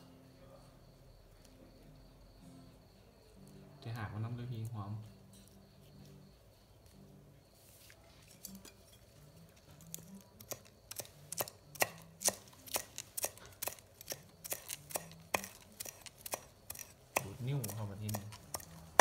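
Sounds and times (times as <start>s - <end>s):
pestle pounding in a mortar: 10.4s - 19.0s.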